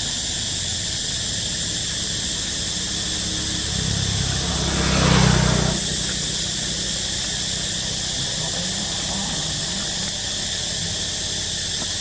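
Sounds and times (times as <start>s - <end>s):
high drone of insects: 0.0s - 12.0s
motor vehicle passing: 2.1s - 11.7s.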